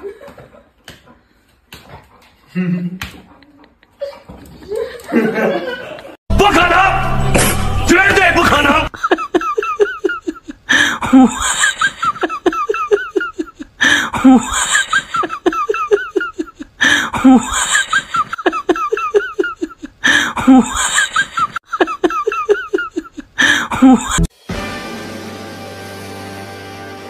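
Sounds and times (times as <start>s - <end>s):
person laughing: 8.9s - 24.3s.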